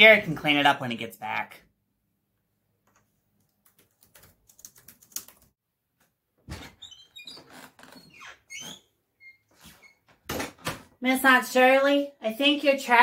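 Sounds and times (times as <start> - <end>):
keyboard typing clicks: 2.9 - 5.5
door hinges squeaking: 6.5 - 10.7.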